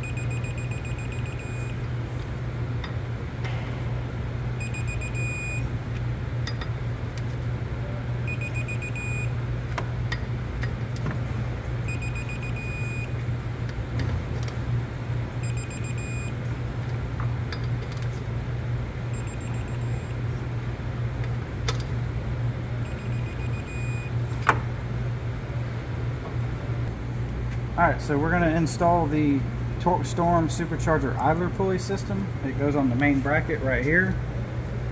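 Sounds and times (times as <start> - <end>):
digital torque wrench beeping: 0.0 - 1.8, 4.6 - 5.6, 8.3 - 9.3, 11.9 - 13.1, 15.4 - 16.3, 19.1 - 20.2, 22.8 - 24.1
steady low hum: 0.0 - 34.9.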